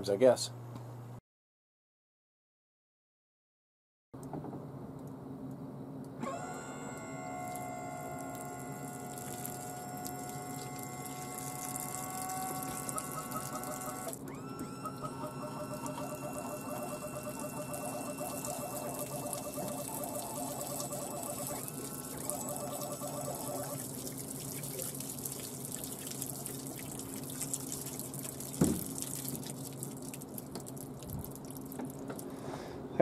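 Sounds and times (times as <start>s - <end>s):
faint steady hum: 4.2s - 33.0s
hydraulic pump whining: 6.2s - 25.4s.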